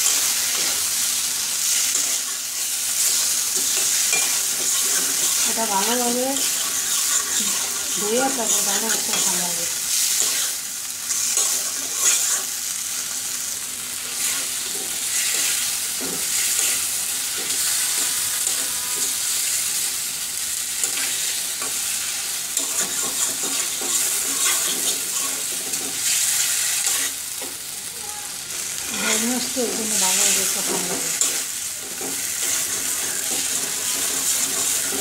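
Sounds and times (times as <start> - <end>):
fish sizzling in oil: 0.0 - 35.0
spatula scraping a pan: 3.0 - 12.6, 22.5 - 27.2, 28.7 - 35.0.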